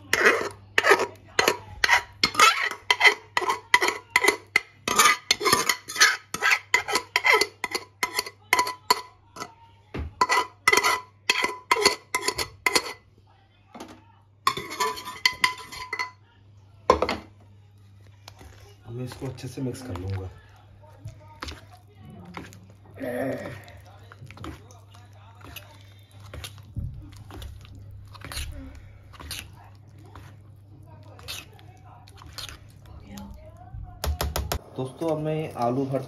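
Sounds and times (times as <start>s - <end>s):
spoon scraping steel bowl: 0.0s - 9.5s, 10.2s - 13.0s, 14.5s - 16.2s.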